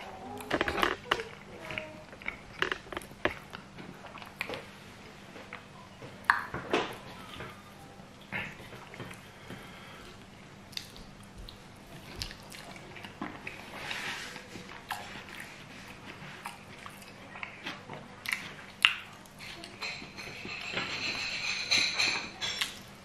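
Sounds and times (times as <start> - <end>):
person chewing: 0.1 - 4.8, 8.1 - 19.8.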